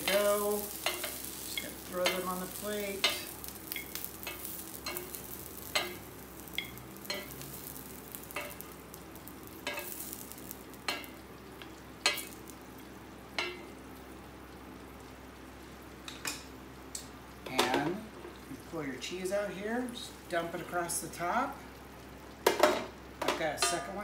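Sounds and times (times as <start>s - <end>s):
wooden tongs clicking on grill: 0.0s - 6.0s
food sizzling on hot plate: 0.0s - 24.0s.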